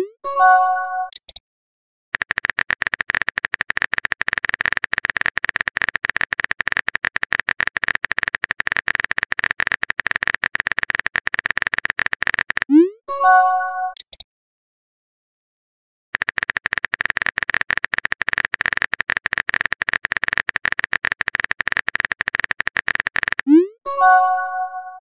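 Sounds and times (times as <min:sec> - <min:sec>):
rapid keyboard typing: 0:02.2 - 0:12.7, 0:16.2 - 0:23.5.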